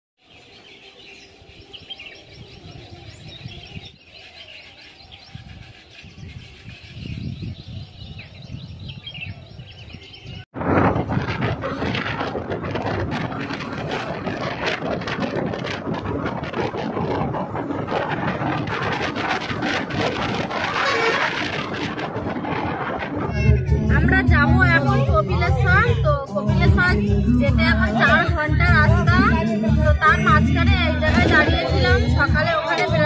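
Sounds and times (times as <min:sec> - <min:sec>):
birds chirping: 0:00.2 - 0:10.5, 0:11.7 - 0:33.0
rough crackling noise: 0:10.6 - 0:26.1
low rumble: 0:10.6 - 0:33.0.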